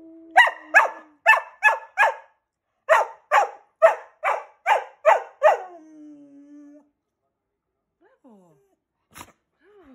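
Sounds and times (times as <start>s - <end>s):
dog barking: 0.4s - 5.8s.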